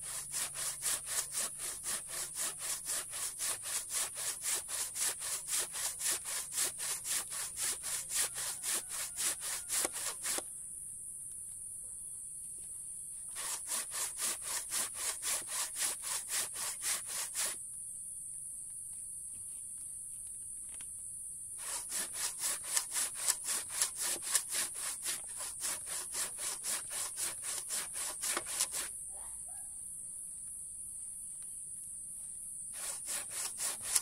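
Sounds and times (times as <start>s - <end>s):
handsaw cutting wood: 0.0s - 10.4s, 13.3s - 17.6s, 21.6s - 28.9s, 32.8s - 34.0s.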